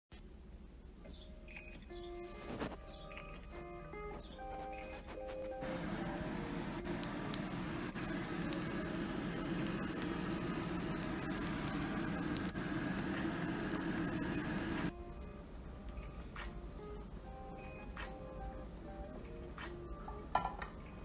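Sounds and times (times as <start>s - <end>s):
egg sizzling in oil: 5.6s - 14.9s.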